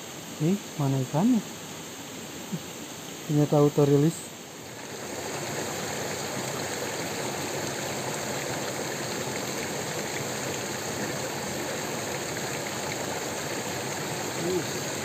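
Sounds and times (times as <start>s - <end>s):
rocky stream rushing: 4.7s - 15.0s.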